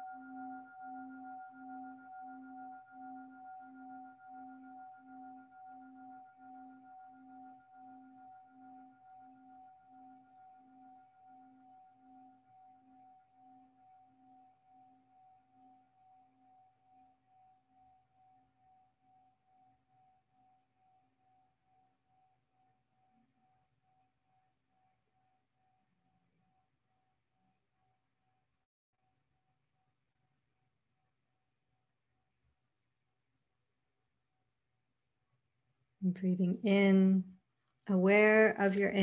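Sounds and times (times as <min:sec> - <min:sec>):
singing bowl ringing: 0:00.0 - 0:28.5.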